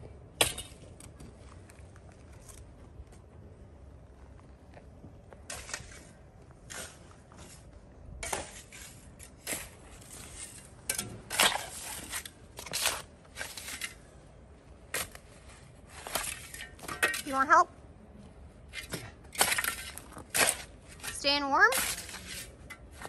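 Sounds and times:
shovel scraping rocky soil: 5.4s - 14.1s, 14.9s - 17.4s, 18.6s - 23.0s.

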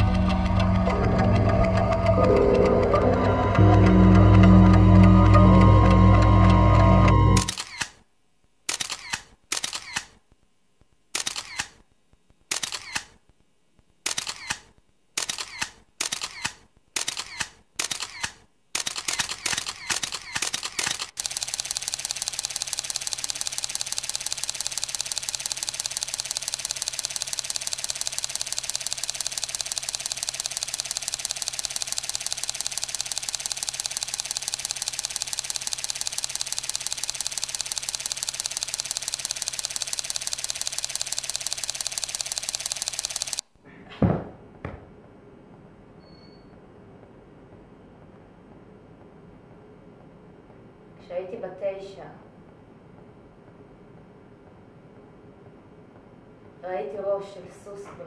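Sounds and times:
rapid mechanical clatter: 0.0s - 6.3s, 15.2s - 43.4s
sharp mechanical clicks: 0.0s - 8.0s, 8.7s - 10.2s, 11.1s - 11.8s, 12.4s - 13.3s, 14.0s - 43.4s.

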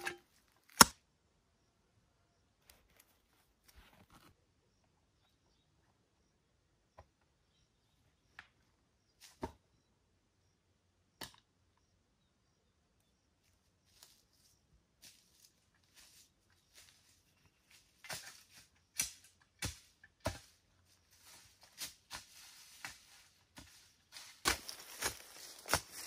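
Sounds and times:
footsteps crunching dry leaves: 13.9s - 26.0s.

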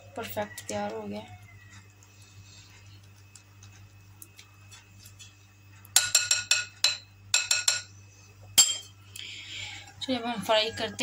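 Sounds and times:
faint stirring clicks: 0.6s - 5.9s
whisk clinking on glass bowl: 6.0s - 7.9s.

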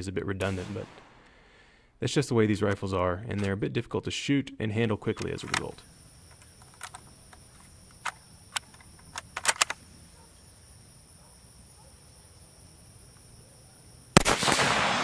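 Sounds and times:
high insect whine: 4.6s - 15.0s
rifle bolt clicks and clacks: 5.1s - 9.8s.

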